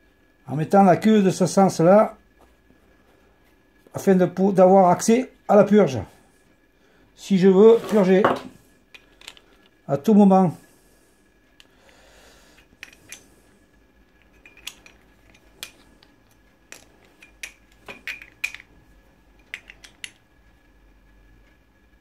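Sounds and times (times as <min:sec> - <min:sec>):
faint metal clicks and clinks: 0:14.1 - 0:18.7.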